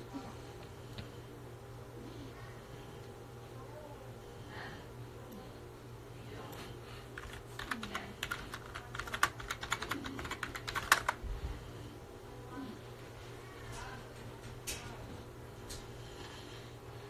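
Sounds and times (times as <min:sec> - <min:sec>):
rapid irregular clicks: 0:07.1 - 0:11.2.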